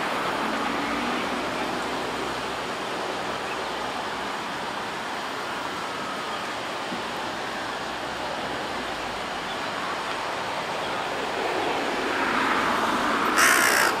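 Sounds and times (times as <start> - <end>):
small waves: 0.0 - 14.0
wind: 0.0 - 14.0.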